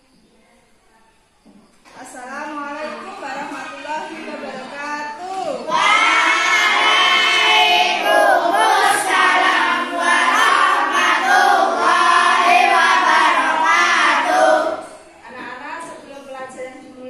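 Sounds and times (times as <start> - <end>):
children singing in unison: 5.7 - 15.1.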